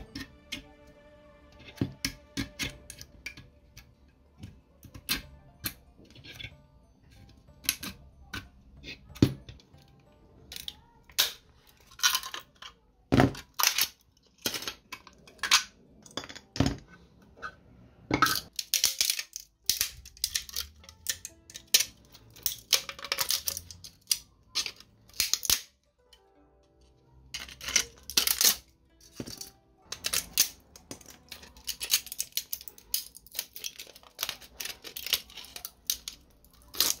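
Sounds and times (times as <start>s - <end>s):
plastic parts clicking together: 18.2s - 26.2s, 27.4s - 37.0s.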